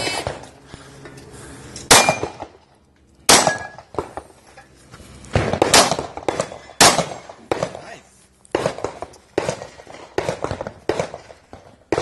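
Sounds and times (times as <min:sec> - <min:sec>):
pistol shots: 0:01.9 - 0:02.6, 0:03.3 - 0:04.2, 0:05.3 - 0:07.8, 0:08.5 - 0:12.0.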